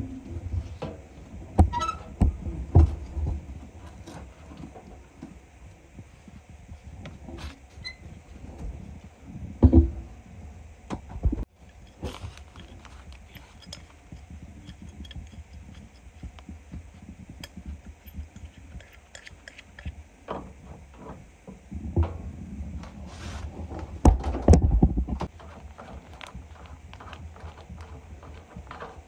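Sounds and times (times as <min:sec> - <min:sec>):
knocks and bumps: 0:08.4 - 0:10.1, 0:23.6 - 0:29.0
hand tools clinking on metal: 0:11.6 - 0:16.3.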